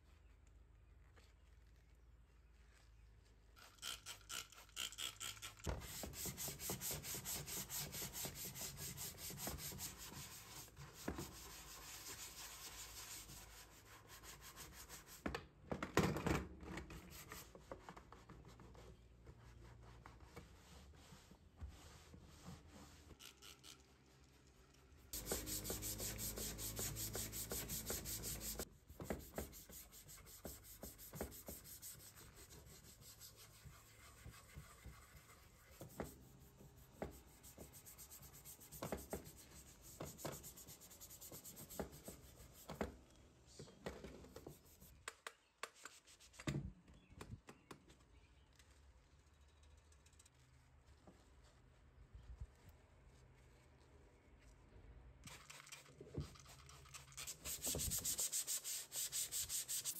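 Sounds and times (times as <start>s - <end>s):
cloth rubbing on panel: 25.2s - 36.4s.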